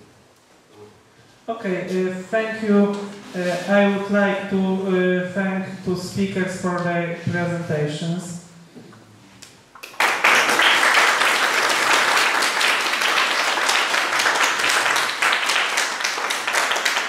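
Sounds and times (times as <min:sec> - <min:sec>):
audience applauding: 0:09.8 - 0:17.0.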